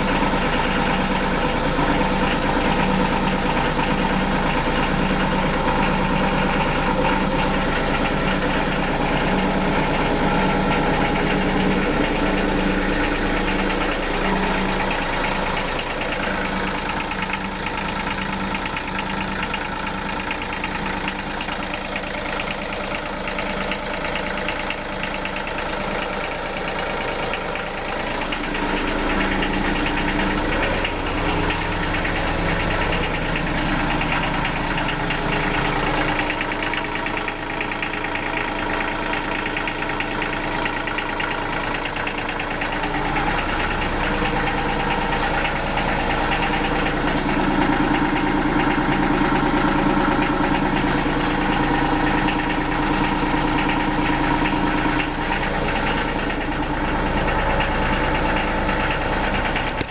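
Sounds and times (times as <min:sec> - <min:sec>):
diesel generator engine running: 0:00.0 - 0:59.9.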